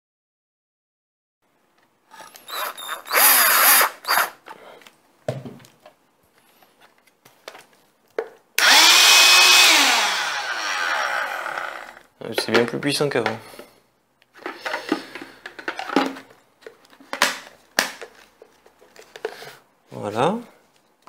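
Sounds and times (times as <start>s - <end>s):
cordless drill whirring: 2.2s - 4.4s, 8.6s - 12.0s
hand vacuum motor whining: 2.5s - 4.3s, 8.6s - 12.0s.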